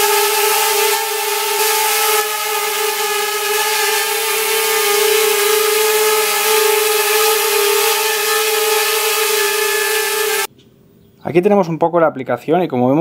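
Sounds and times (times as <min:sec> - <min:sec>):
mini drone whine: 0:00.0 - 0:10.5.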